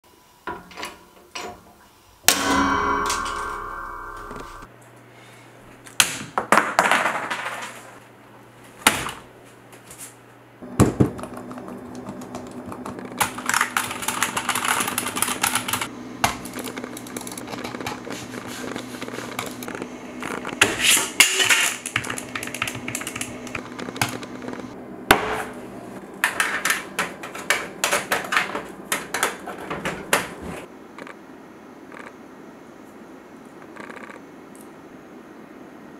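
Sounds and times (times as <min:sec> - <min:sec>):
typing on computer keyboard: 0:11.9 - 0:15.9.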